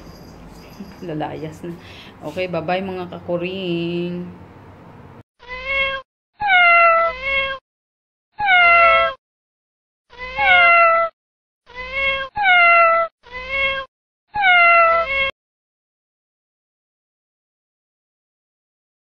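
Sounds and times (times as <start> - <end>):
cat meowing: 5.4 - 7.6, 8.4 - 9.2, 10.1 - 11.1, 11.7 - 15.3.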